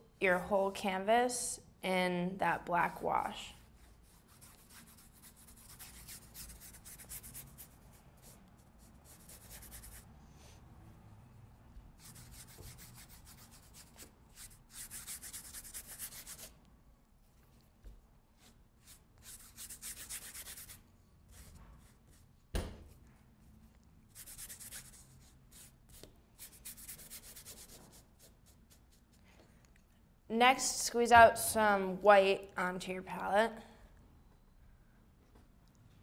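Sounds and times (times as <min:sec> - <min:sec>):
paintbrush bristles rubbing on canvas: 0:11.9 - 0:16.5, 0:18.4 - 0:22.3, 0:24.1 - 0:29.2.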